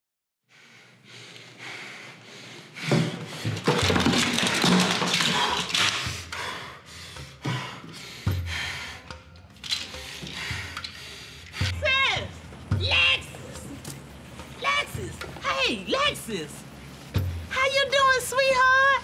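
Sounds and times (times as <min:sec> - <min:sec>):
heavy breathing: 0:00.5 - 0:04.0, 0:05.1 - 0:11.8.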